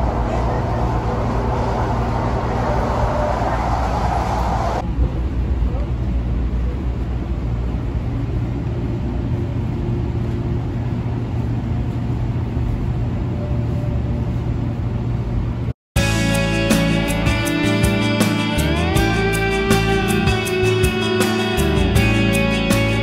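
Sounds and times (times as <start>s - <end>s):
train rumble from inside: 0.0s - 15.7s
plucked guitar-like music: 16.0s - 23.0s.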